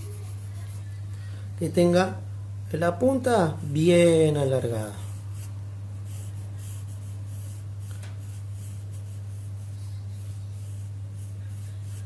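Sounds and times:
pencil scratching on paper: 0.0s - 1.0s, 4.8s - 12.0s
steady low hum: 0.0s - 12.0s.

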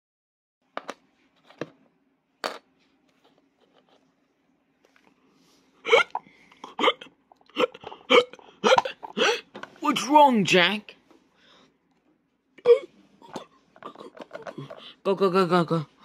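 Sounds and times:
person imitating hiccups: 5.8s - 9.4s, 12.6s - 14.6s.

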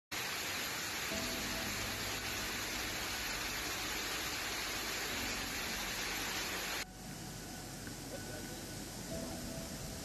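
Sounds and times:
heavy rain and rushing floodwater: 0.1s - 6.9s
rain and running water: 0.1s - 10.0s.

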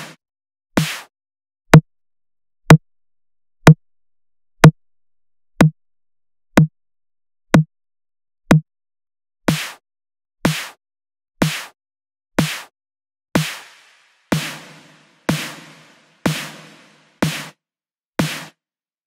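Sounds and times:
synthesized snare drum hits: 13.4s - 17.6s, 18.2s - 18.6s.

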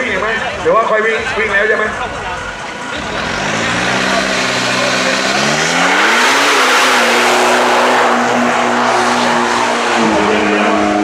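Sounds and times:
diesel engine revving hard: 2.4s - 11.0s.

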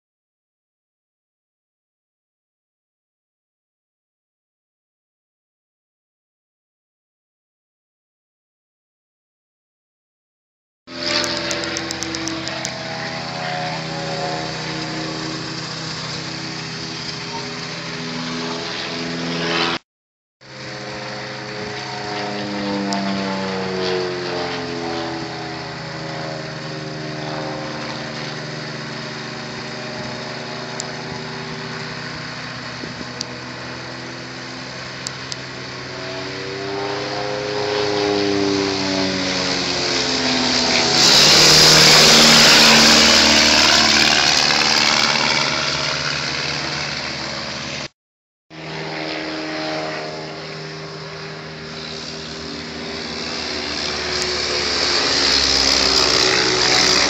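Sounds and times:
propeller plane engine passing: 10.9s - 19.8s, 20.4s - 47.9s, 48.5s - 57.0s.

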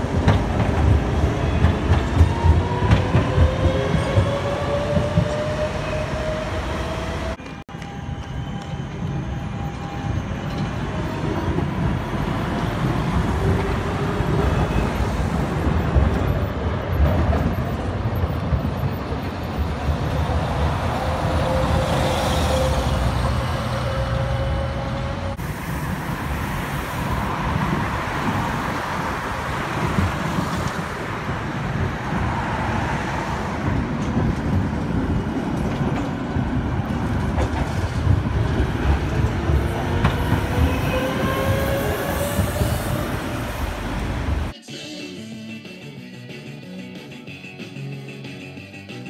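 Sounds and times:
wheels clacking over rail joints: 0.0s - 5.6s
bus passing: 0.0s - 44.6s
tram rolling noise: 0.0s - 44.6s.

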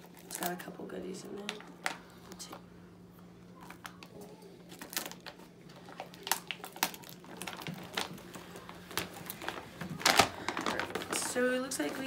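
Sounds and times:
paper bag rustling: 3.6s - 12.0s.

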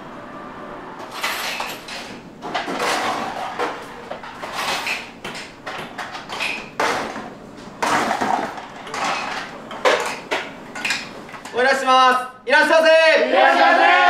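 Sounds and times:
dishes and utensils clattering: 1.0s - 11.6s.

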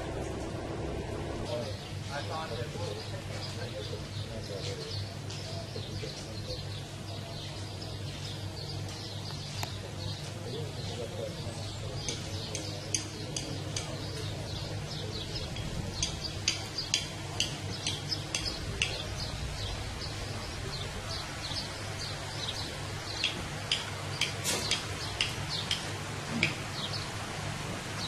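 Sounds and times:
steady low rumble: 0.0s - 3.3s
small birds chirping: 1.2s - 27.2s.

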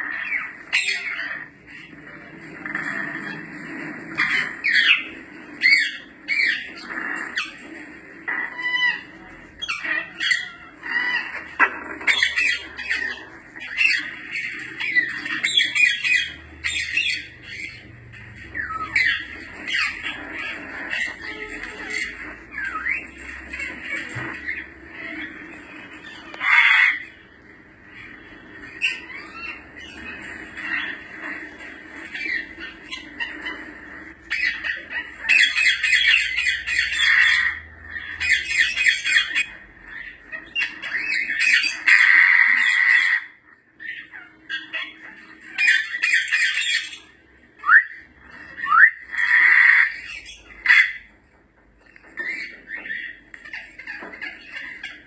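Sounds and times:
parrot squawking: 0.0s - 55.0s
parrot gliding whistles: 47.6s - 49.5s.

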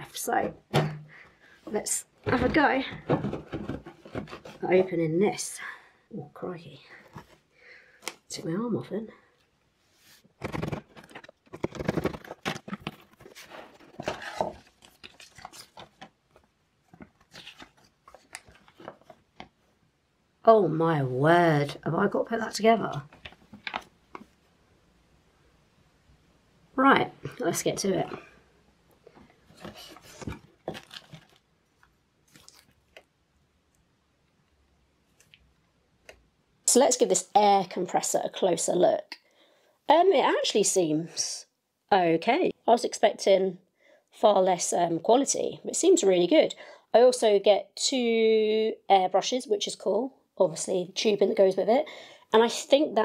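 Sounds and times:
cardboard and paper rustling: 1.7s - 5.0s, 10.2s - 19.5s, 29.4s - 31.4s
plastic wrapping crinkling: 10.4s - 16.4s, 17.0s - 19.4s, 29.5s - 33.1s.

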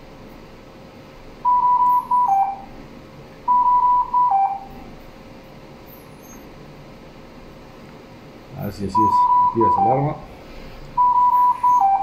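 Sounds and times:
ventilator alarm beeps: 1.4s - 2.8s, 3.4s - 5.0s, 8.7s - 10.3s, 11.0s - 12.0s.

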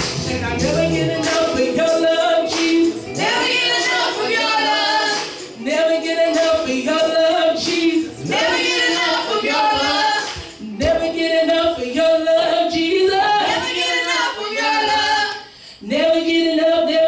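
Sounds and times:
woman singing into a microphone: 0.2s - 17.0s.

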